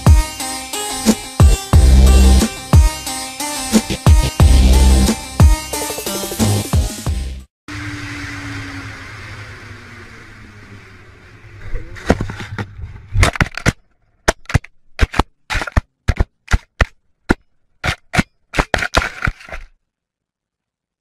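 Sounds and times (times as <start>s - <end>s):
steady rumble: 3.9s - 5.2s.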